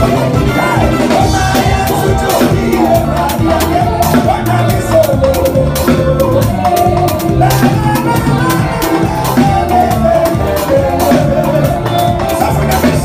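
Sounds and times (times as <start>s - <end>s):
live band music: 0.0s - 13.0s.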